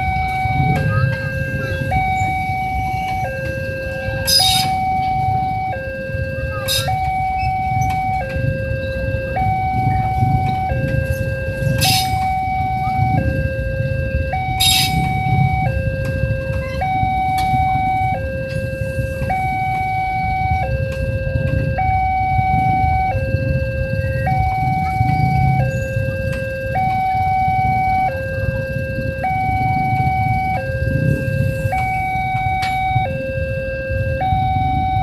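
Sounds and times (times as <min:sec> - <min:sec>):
level crossing alarm two-tone: 0:00.0 - 0:35.0.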